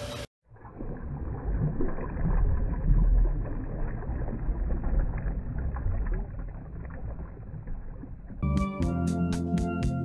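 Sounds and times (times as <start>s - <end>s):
underwater rumble and hiss: 0.6s - 8.4s.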